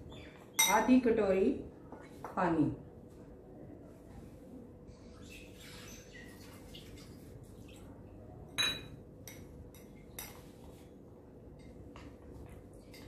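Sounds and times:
metal utensil clinking glass bowl: 8.6 - 10.4.

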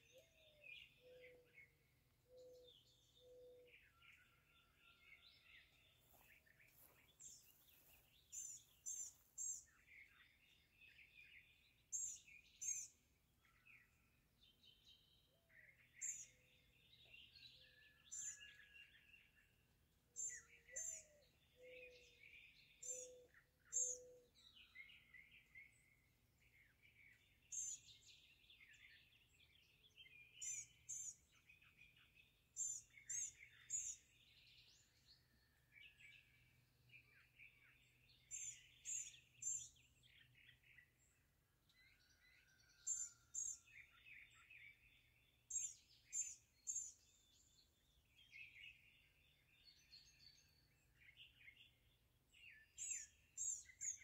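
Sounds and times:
warbling birdsong: 20.1 - 26.1, 26.8 - 54.0.

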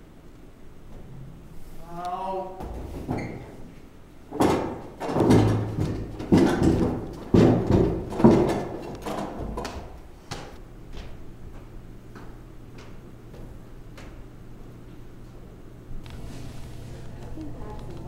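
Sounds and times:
heavy footsteps echoing in hall: 4.3 - 15.1.

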